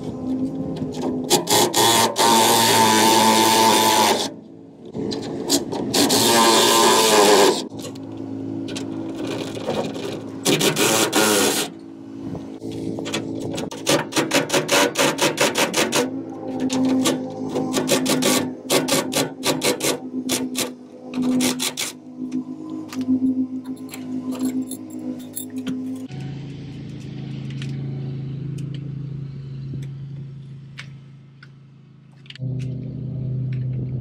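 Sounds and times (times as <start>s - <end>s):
wrench and bolt grinding: 13.1s - 26.1s.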